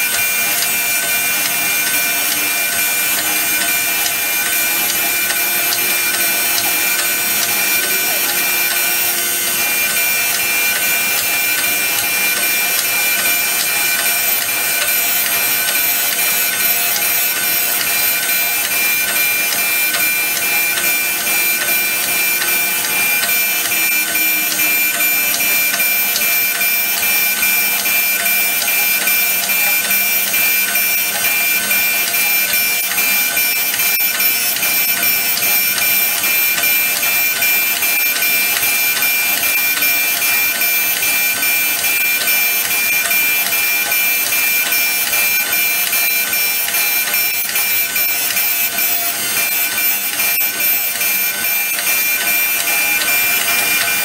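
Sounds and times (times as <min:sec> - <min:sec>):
surface grinder grinding: 0:00.0 - 0:26.8
high tone of spinning wheel: 0:00.0 - 0:54.0.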